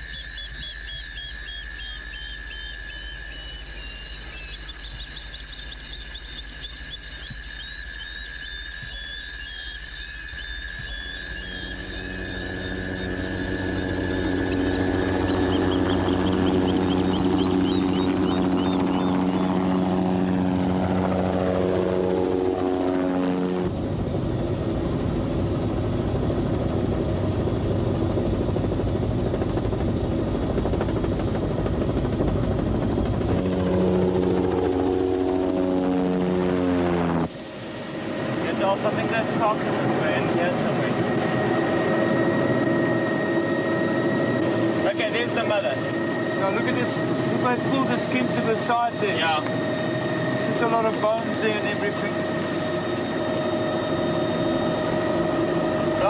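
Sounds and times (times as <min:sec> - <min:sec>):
birds chirping: 0:00.0 - 0:23.4, 0:37.4 - 0:56.0
helicopter cabin noise with whine: 0:00.0 - 0:56.0
insects chirping: 0:00.0 - 0:56.0
helicopter passing: 0:00.2 - 0:56.0.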